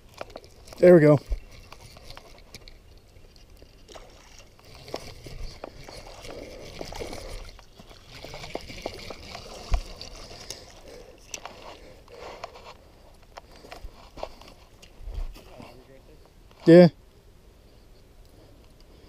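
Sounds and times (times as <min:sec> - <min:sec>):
water sloshing and splashing: 0:00.0 - 0:15.6.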